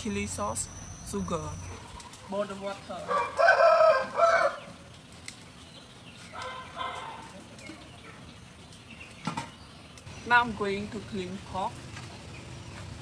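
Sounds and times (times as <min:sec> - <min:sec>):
chickens calling: 0:01.0 - 0:10.4.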